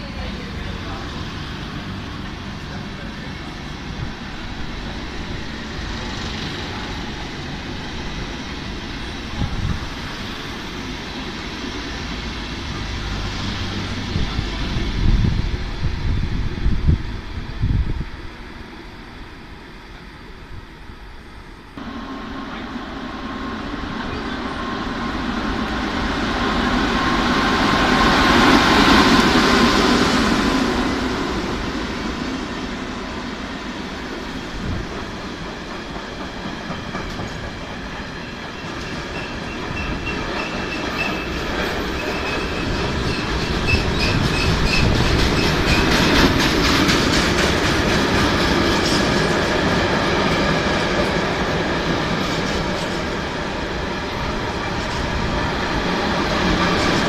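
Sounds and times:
freight train rolling past: 0.0s - 57.0s
high wheel squeal: 39.1s - 46.0s.

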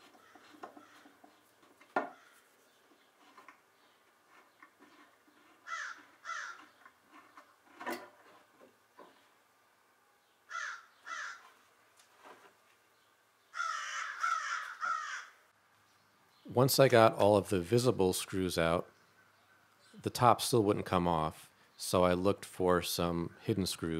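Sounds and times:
bird calling: 0.0s - 7.4s, 10.2s - 11.6s, 13.4s - 15.4s.

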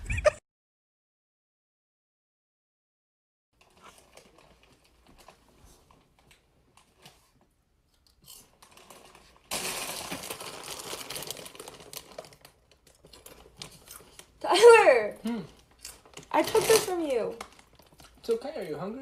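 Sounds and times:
chip bag rustling: 3.6s - 7.0s, 8.3s - 14.4s, 15.4s - 18.5s.

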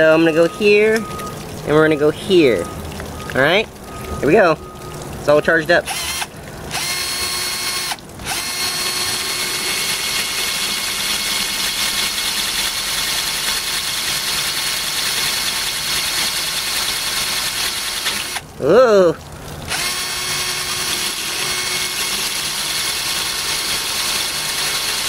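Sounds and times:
cordless drill whining: 5.9s - 18.4s, 19.7s - 25.0s.

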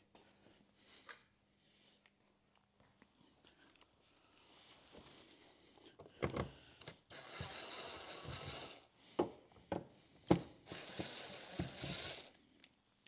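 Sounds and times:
screwdriver clicks and knocks: 9.2s - 12.3s
rapid clicking of screwdriver: 10.3s - 12.4s.

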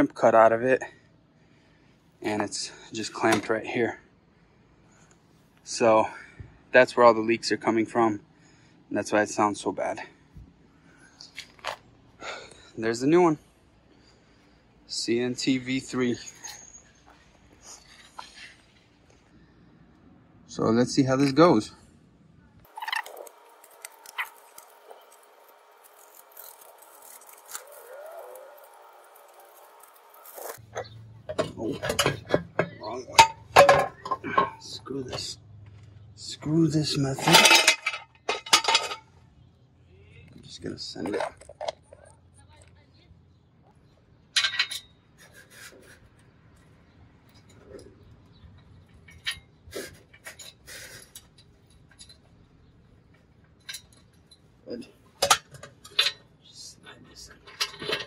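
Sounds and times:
gasket scraping on metal: 22.7s - 35.3s.

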